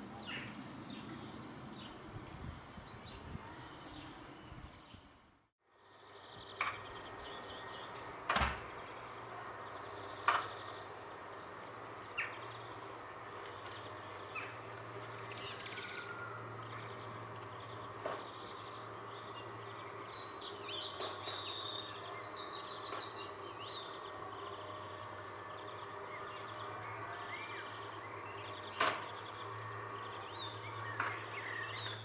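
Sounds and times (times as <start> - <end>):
bird chirps: 12.2 - 32.0.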